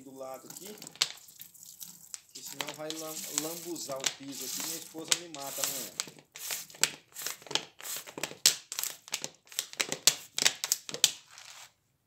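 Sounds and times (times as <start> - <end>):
plastic bottle crackling: 0.2 - 11.7
water draining from bottle: 0.4 - 6.1.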